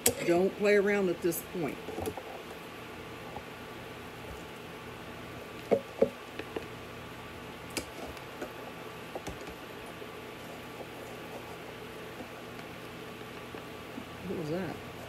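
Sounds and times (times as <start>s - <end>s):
dishes knocking and tapping: 5.7s - 6.2s.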